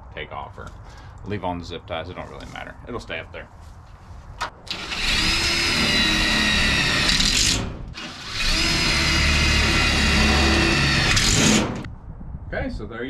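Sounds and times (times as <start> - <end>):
cordless drill driving screws: 4.7 - 11.9.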